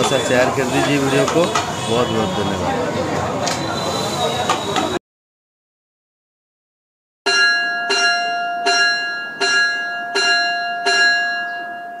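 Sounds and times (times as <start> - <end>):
bell ringing: 7.3 - 12.0.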